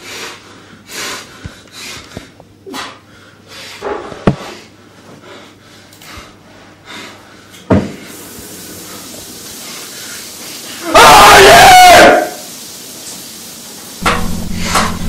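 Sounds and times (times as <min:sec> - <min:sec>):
person breathing hard: 0:00.0 - 0:08.1
steady hiss: 0:08.0 - 0:10.9, 0:11.7 - 0:15.0
loud thump: 0:14.0 - 0:15.0
sharp knock: 0:14.0 - 0:15.0.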